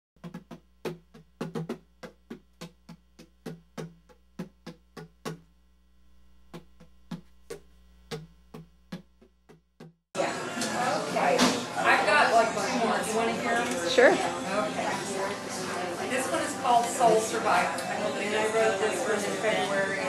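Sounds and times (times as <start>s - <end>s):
electrical mains hum: 0.2s - 9.4s.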